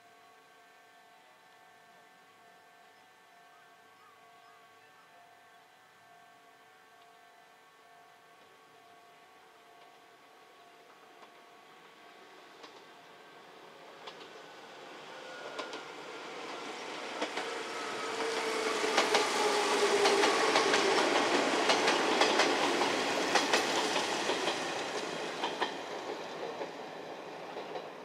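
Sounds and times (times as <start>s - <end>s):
electric train whine: 0.0s - 28.0s
train wheels clacking over rail joints: 14.0s - 14.4s, 16.5s - 28.0s.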